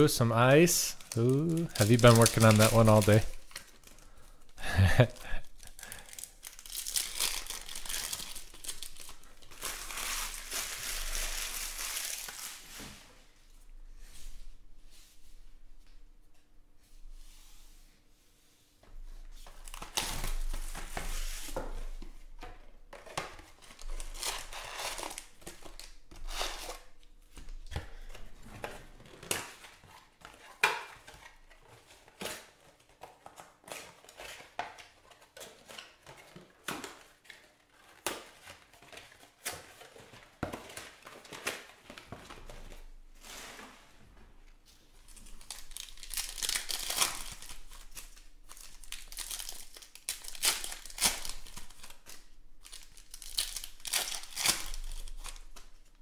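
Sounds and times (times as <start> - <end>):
foil wrappers crinkling and tearing: 0.1 - 12.7, 23.4 - 28.1, 45.0 - 56.0.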